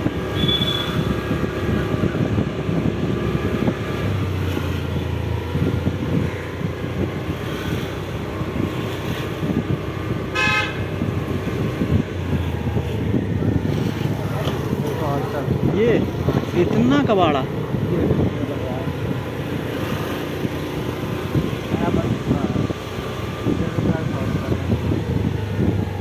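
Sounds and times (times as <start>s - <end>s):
wind and road rumble: 0.0s - 26.0s
vehicle horn tooting: 0.3s - 1.1s, 10.3s - 10.9s.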